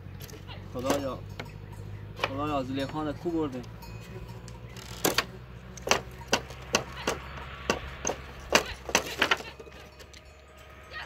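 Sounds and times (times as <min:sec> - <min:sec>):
sharp knocks: 0:04.9 - 0:09.6.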